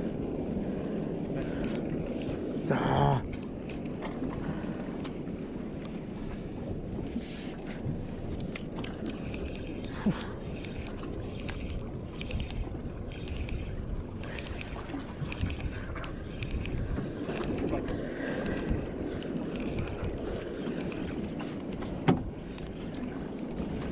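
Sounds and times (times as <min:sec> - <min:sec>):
wind and water noise: 0:00.0 - 0:23.9
light clicks: 0:08.3 - 0:18.6.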